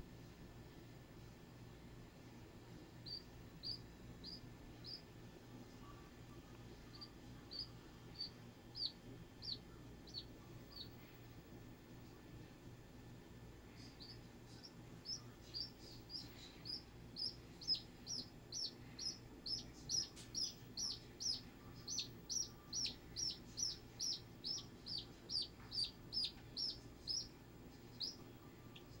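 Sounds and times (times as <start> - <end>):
duckling peeping: 3.0 - 5.1, 6.9 - 11.0, 13.8 - 29.0.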